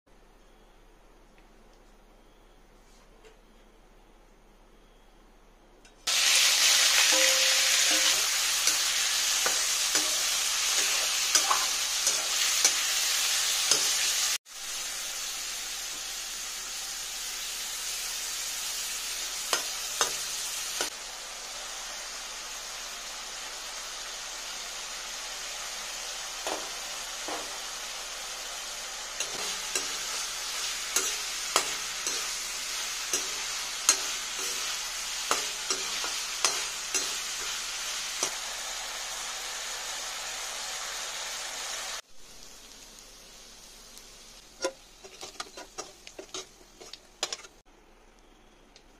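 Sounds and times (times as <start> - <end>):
chicken sizzling in hot oil: 6.0 - 47.6
utensil scraping a wok: 6.1 - 14.4, 29.2 - 38.4, 44.6 - 47.6.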